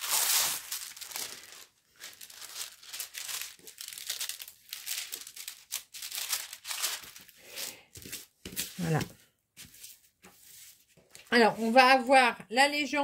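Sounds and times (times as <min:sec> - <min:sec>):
plastic film crinkling: 0:00.0 - 0:09.0.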